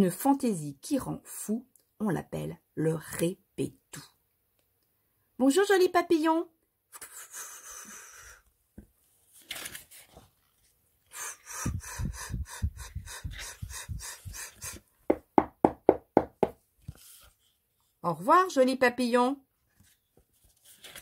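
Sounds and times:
paper page turning: 9.0 - 10.8, 16.8 - 17.5, 19.7 - 21.0.

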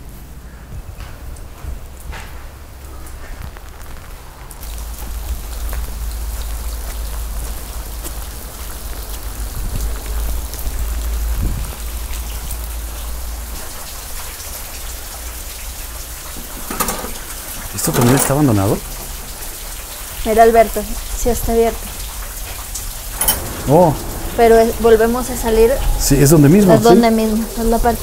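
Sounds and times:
rain falling: 0.0 - 28.0
deep rumble: 18.8 - 28.0.

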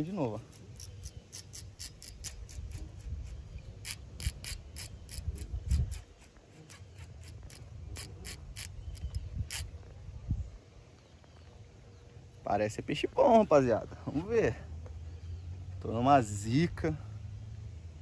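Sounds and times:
wind rumble on microphone: 2.2 - 6.2, 7.4 - 11.0.

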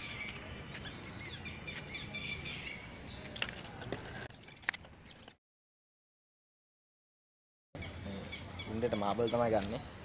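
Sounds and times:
birds chirping: 0.0 - 5.4, 7.8 - 10.0.

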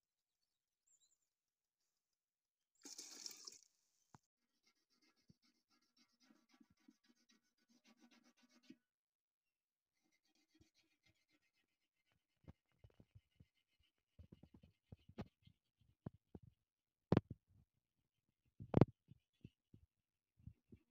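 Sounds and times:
water splashing into steel pot: 2.8 - 3.7.

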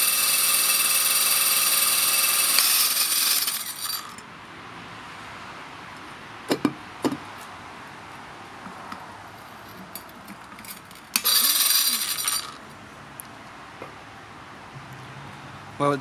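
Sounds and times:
diamond blade grinding glass: 0.0 - 4.2, 10.6 - 12.6.

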